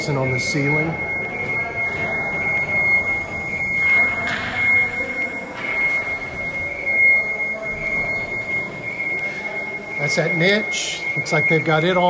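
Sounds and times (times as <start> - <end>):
high-pitched machine whine: 0.0 - 12.0
machinery rumble: 0.0 - 12.0.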